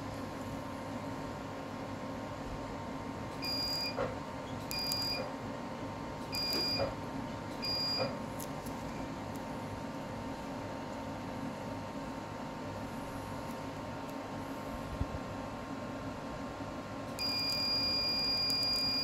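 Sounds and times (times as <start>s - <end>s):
steady background hum: 0.0s - 19.0s
laser high emission beep: 17.2s - 19.0s.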